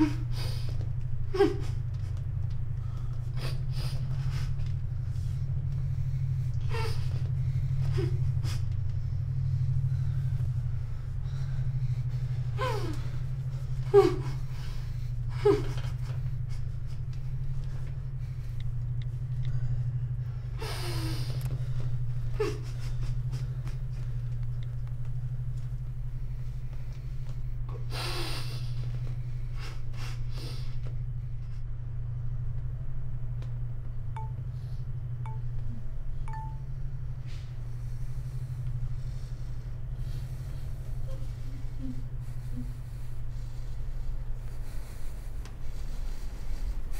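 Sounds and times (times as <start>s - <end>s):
low hum: 0.0s - 46.9s
high chime pings: 34.2s - 34.4s, 36.3s - 36.7s.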